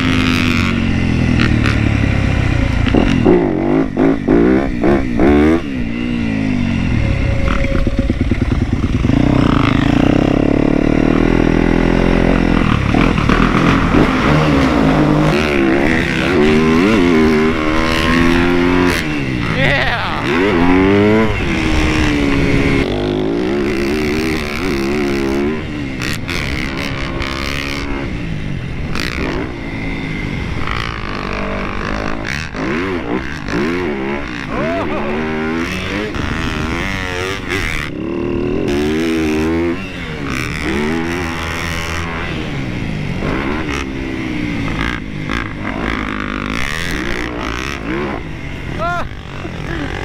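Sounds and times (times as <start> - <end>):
wind rushing over microphone: 0.0 - 24.6
dirt bike engine revving: 0.0 - 50.0.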